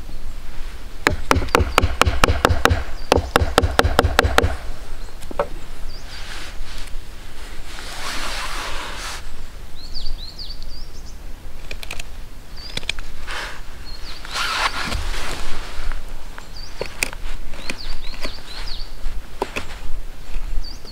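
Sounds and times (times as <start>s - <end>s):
small birds chirping: 1.2s - 6.6s, 9.7s - 20.9s
soft rustling swishes: 5.6s - 9.5s, 13.0s - 20.6s.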